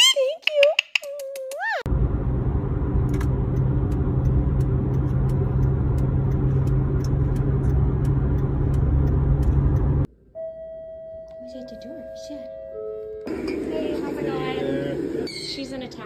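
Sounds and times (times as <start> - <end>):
car road and engine rumble: 1.8 - 10.2.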